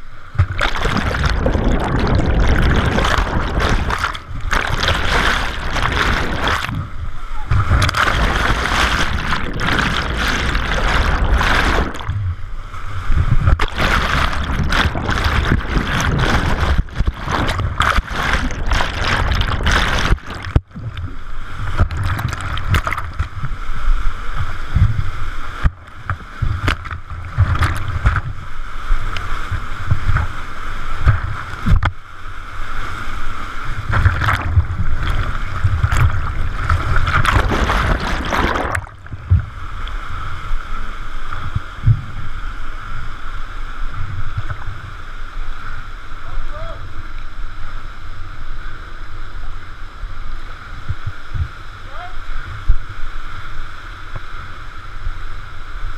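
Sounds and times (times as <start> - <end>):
churning whitewater: 0.4 - 12.5, 13.2 - 23.7, 32.8 - 40.0.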